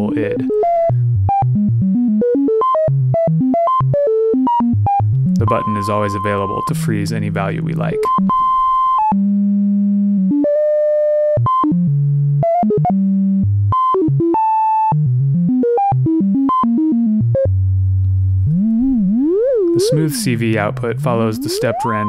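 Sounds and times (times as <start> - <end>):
synthesizer tone with stepped pitch: 18.4 - 22.0.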